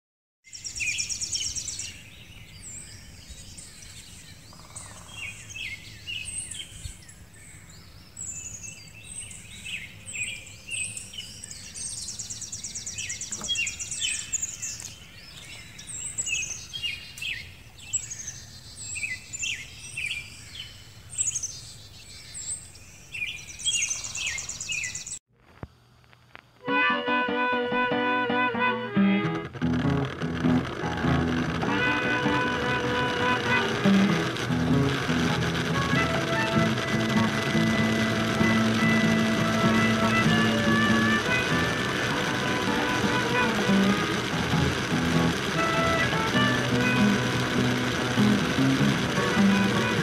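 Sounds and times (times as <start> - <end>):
birds chirping and trilling: 0.5 - 25.2.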